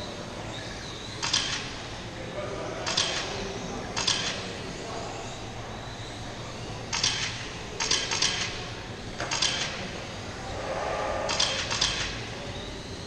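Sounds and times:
toy race cars rattling past: 10.6s - 12.4s.

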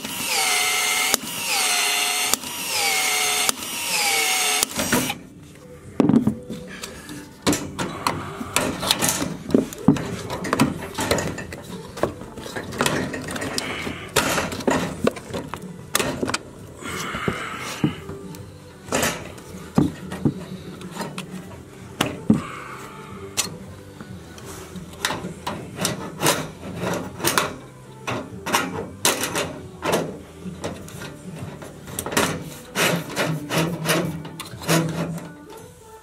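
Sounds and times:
rubbing and scraping: 30.6s - 35.4s.

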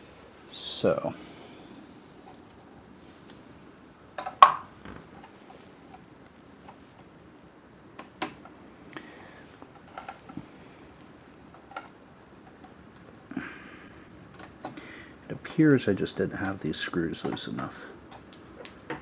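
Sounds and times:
cables rustling: 7.9s - 13.4s.

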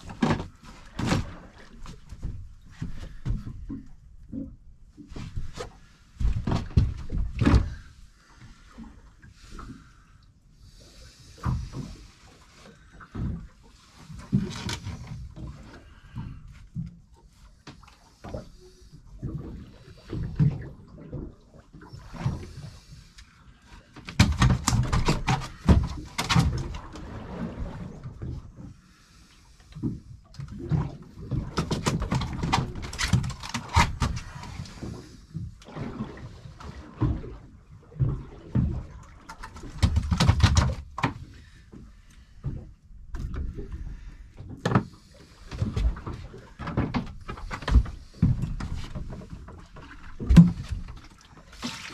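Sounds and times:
knocks and clatters on boat deck: 0.0s - 8.0s, 11.4s - 12.2s, 12.9s - 18.6s, 23.8s - 27.2s, 29.8s - 51.9s.

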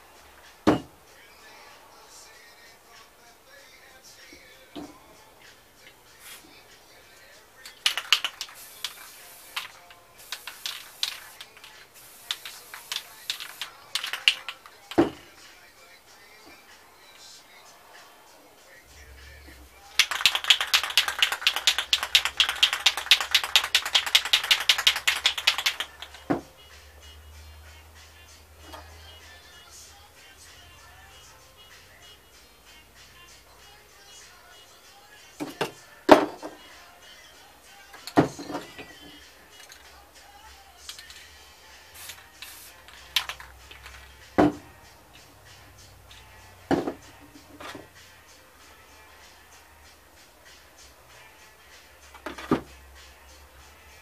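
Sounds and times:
spray can ball clacking: 7.6s - 15.3s, 20.0s - 26.4s, 37.9s - 39.9s, 40.8s - 41.3s, 41.9s - 44.6s, 46.1s - 47.9s
cans knocking on table: 46.7s - 47.0s.

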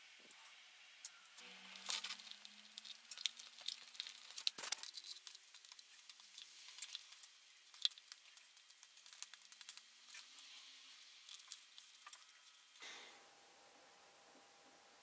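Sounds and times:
faint steady hum: 0.0s - 15.0s
small objects clicking and tapping: 1.0s - 12.6s.

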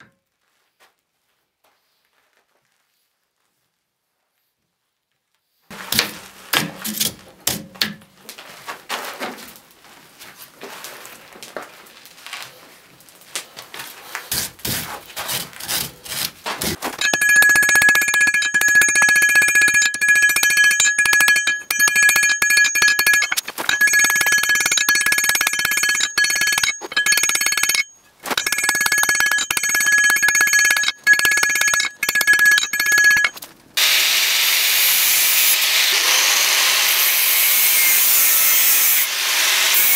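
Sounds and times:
metal clanks and knocks: 16.8s - 33.4s
hammering on ringing anvil: 17.0s - 33.4s.

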